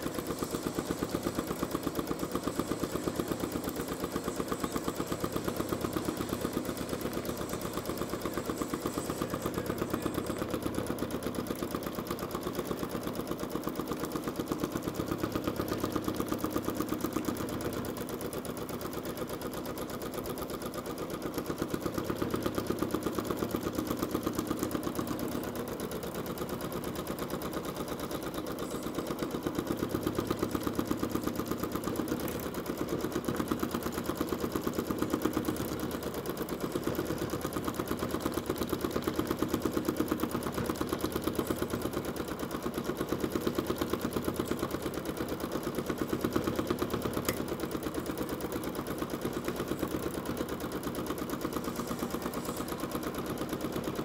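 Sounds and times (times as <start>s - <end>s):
sewing machine stitching: 0.0s - 54.0s.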